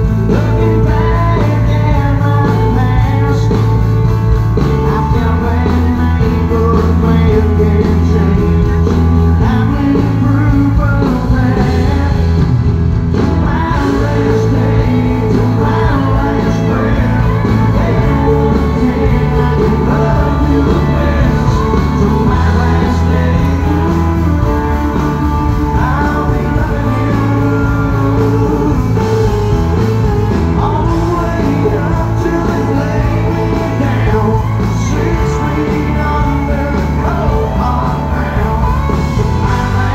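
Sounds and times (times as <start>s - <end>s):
bass: 0.0s - 39.9s
drums: 0.0s - 39.9s
electric guitars: 0.0s - 39.9s
man singing: 0.0s - 39.9s.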